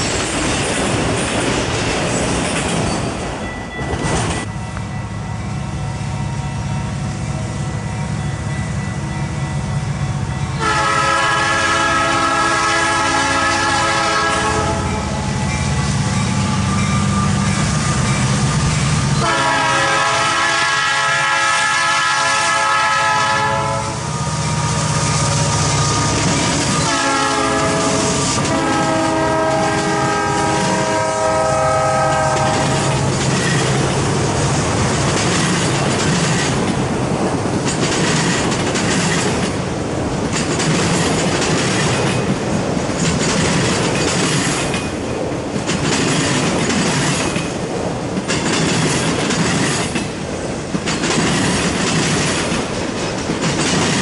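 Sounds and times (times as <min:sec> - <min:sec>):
train wheels clicking over rail joints: 0:00.0 - 0:04.9, 0:24.0 - 0:31.1, 0:32.0 - 0:54.0
locomotive horn blasts: 0:10.5 - 0:15.4, 0:19.2 - 0:33.1.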